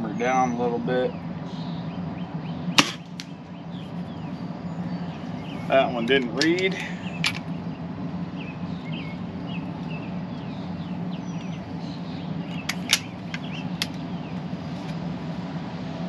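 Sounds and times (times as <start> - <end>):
steady low hum: 0.0 - 16.0
bird chirps: 0.2 - 6.1, 6.8 - 14.5
air rifle clicks: 6.2 - 7.5, 12.6 - 14.0.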